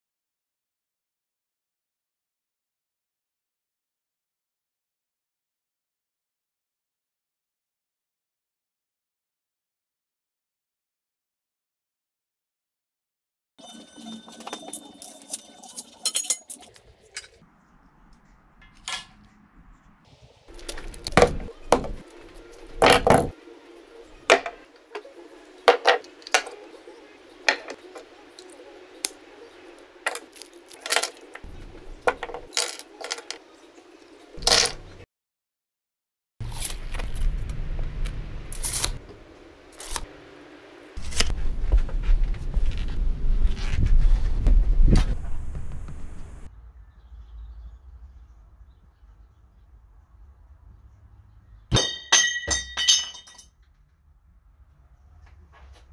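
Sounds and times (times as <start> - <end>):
metal tools clinking and scraping: 13.6 - 17.4, 25.7 - 26.7, 27.4 - 28.6, 30.0 - 33.4, 34.4 - 34.9, 51.7 - 53.5.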